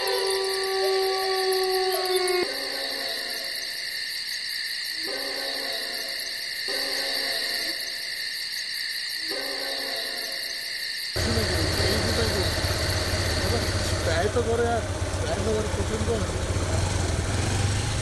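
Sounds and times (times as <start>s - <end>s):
low hooting call: 0.0s - 3.3s, 11.2s - 17.0s
high-pitched insect chorus: 0.0s - 16.6s.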